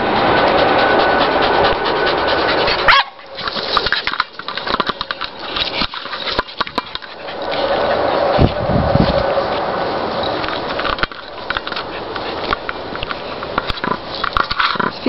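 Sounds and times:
rushing noise: 0:00.0 - 0:04.2.

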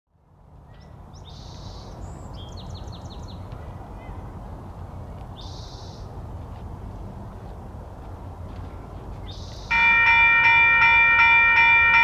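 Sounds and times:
songbird singing: 0:00.6 - 0:04.2, 0:05.1 - 0:06.2, 0:08.7 - 0:12.0.

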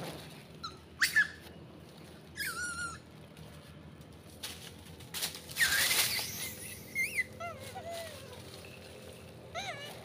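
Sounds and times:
monkey harsh screech: 0:00.6 - 0:01.4, 0:05.5 - 0:08.4
monkey high-pitched call: 0:00.6 - 0:01.4, 0:02.4 - 0:03.1, 0:05.6 - 0:08.8, 0:09.5 - 0:10.0.

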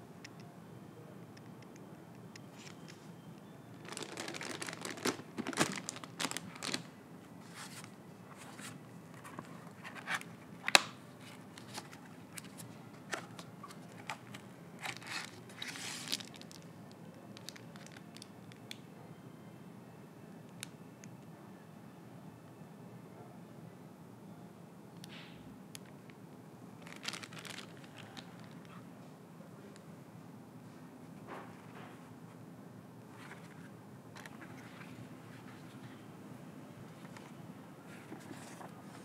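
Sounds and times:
plastic packaging crinkling: 0:03.8 - 0:08.7, 0:09.3 - 0:16.7, 0:17.4 - 0:18.3, 0:26.8 - 0:28.8.

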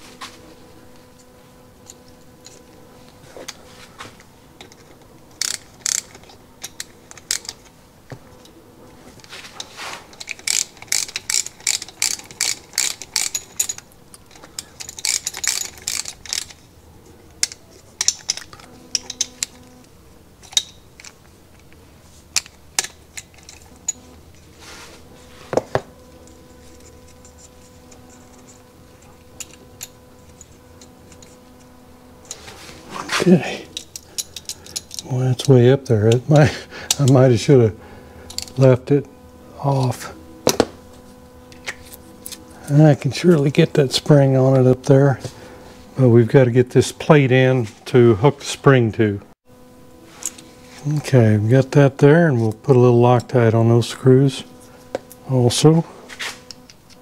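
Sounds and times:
tools and metal parts tapping: 0:04.6 - 0:07.7, 0:09.2 - 0:19.7, 0:20.4 - 0:24.5, 0:26.6 - 0:31.4, 0:32.3 - 0:37.2, 0:38.3 - 0:38.6
ratchet wrench clicking: 0:05.4 - 0:07.7, 0:10.2 - 0:16.6.

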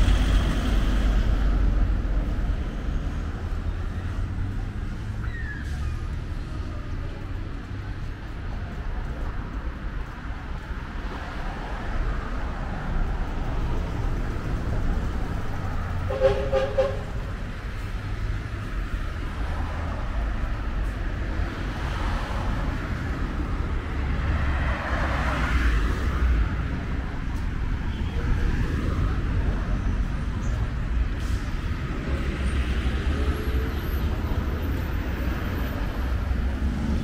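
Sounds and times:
street traffic rumble: 0:00.0 - 0:37.0
two-tone vehicle horn honk: 0:16.1 - 0:17.1.

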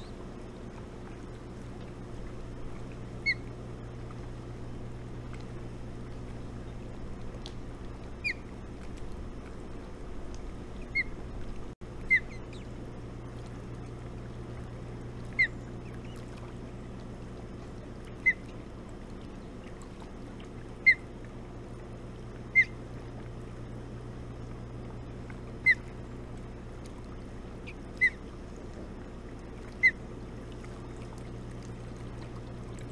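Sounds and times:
osprey chirps: 0:03.2 - 0:03.5, 0:08.2 - 0:08.5, 0:10.8 - 0:11.2, 0:12.1 - 0:12.7, 0:15.3 - 0:16.2, 0:22.5 - 0:22.8, 0:27.6 - 0:28.2.

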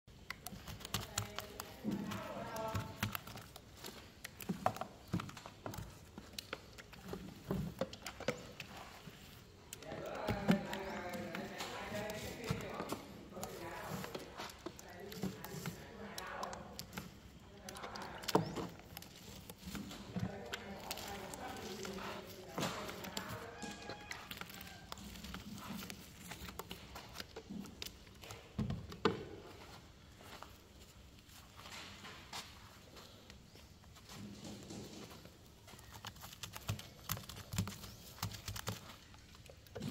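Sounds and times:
paint roller tapping and clicking: 0:00.1 - 0:29.8, 0:34.4 - 0:39.9
person speaking: 0:00.2 - 0:29.2.

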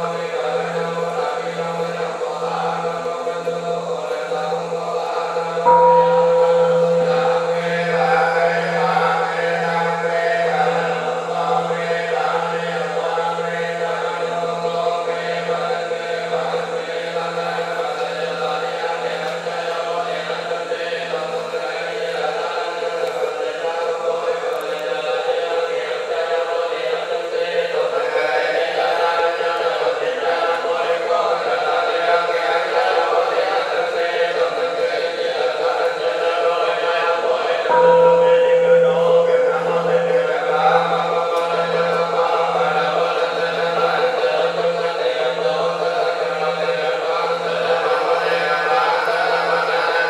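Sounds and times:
monks chanting: 0:00.0 - 0:50.0
struck ringing note: 0:05.6 - 0:11.9, 0:37.7 - 0:42.9.

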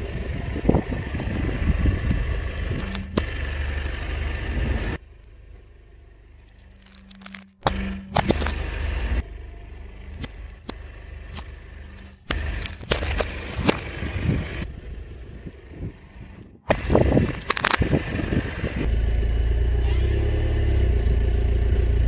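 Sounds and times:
car tyre rumbling: 0:00.0 - 0:22.0
objects cracking and popping: 0:06.4 - 0:08.6, 0:10.0 - 0:13.9, 0:16.7 - 0:17.9.

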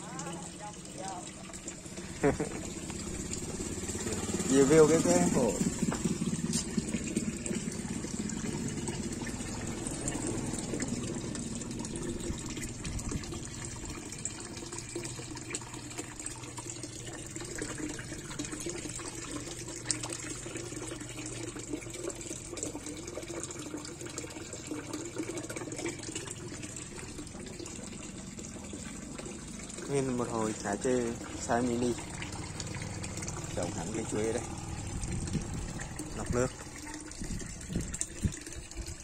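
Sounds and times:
water pouring into pond: 0:00.0 - 0:39.0.

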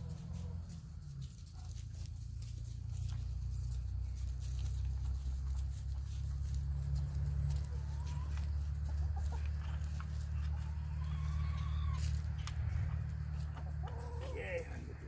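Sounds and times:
hens clucking: 0:00.0 - 0:15.0.

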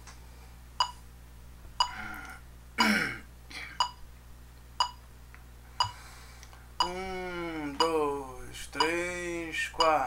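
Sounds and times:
man clearing throat: 0:02.8 - 0:03.8
metronome ticking: 0:03.8 - 0:04.0, 0:04.8 - 0:05.0, 0:05.8 - 0:06.0, 0:06.8 - 0:10.0.

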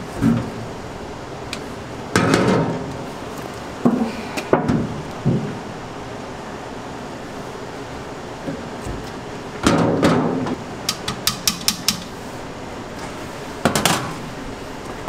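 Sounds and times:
steady background hum: 0:00.0 - 0:15.0
sharp metal clicks: 0:10.8 - 0:12.1.

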